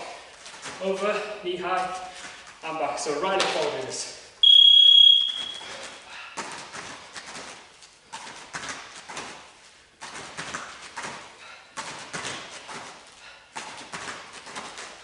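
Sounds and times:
bare feet thudding on mats: 5.6 - 15.0.

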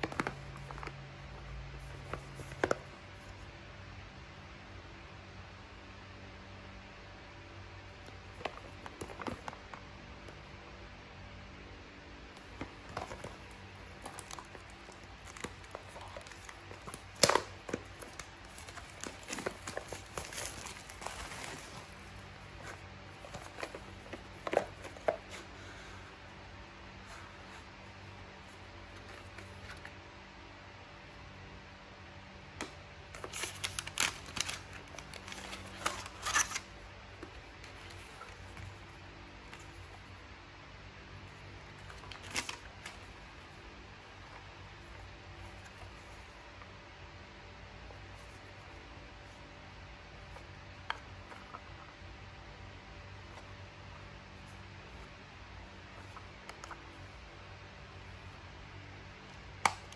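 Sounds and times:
hands handling paperboard box: 0.0 - 3.4, 12.3 - 26.0, 33.1 - 40.1
plastic shrink-wrap crinkling: 12.4 - 25.1, 33.1 - 38.6.

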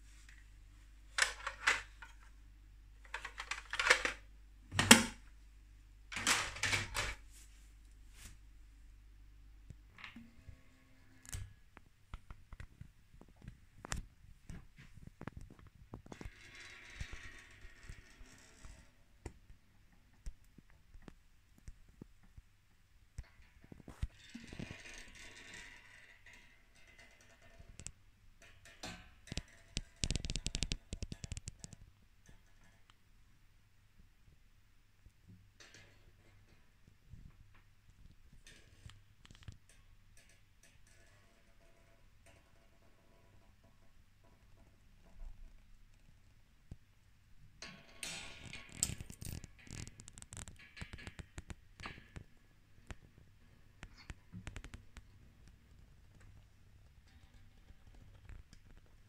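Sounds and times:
plastic toy parts rustling and clicking: 1.2 - 2.3, 3.0 - 4.2, 48.4 - 52.2
plastic toy parts clicking: 3.1 - 4.2.

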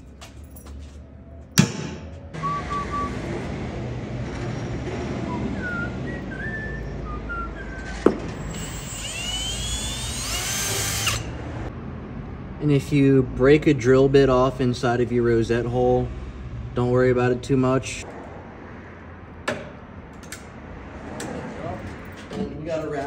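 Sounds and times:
drill squealing through steel: 7.7 - 11.4.

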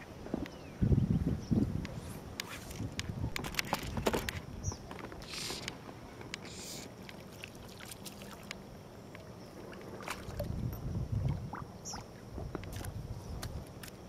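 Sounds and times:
water splashing and lapping: 5.1 - 14.0.

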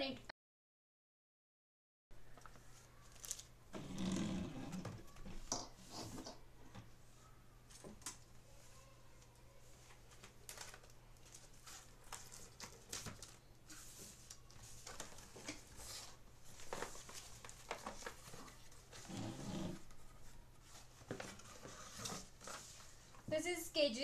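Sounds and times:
cardboard rustling and scraping: 10.0 - 23.2.

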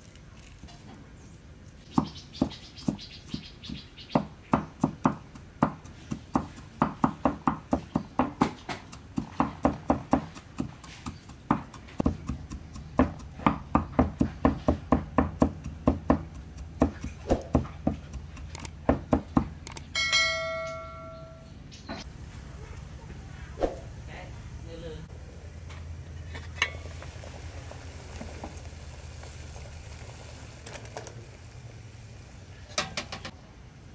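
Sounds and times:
cleaver chopping on wooden block: 3.7 - 19.6
short chime: 20.0 - 21.5.

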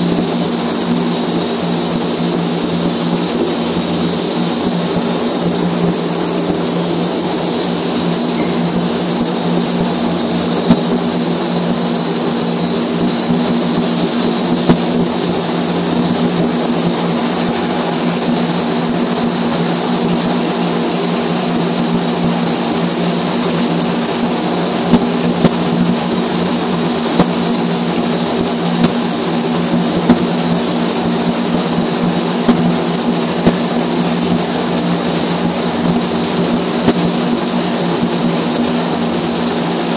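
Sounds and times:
loud machine drone: 0.0 - 39.9
faint wavering high whistle: 5.8 - 10.0, 10.8 - 13.8.

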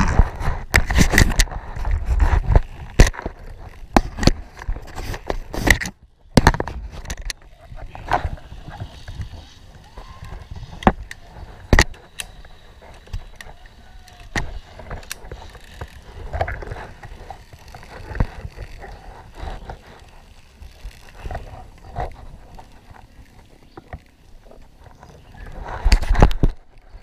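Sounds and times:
carabiners clicking and knocking: 0.8 - 25.0.

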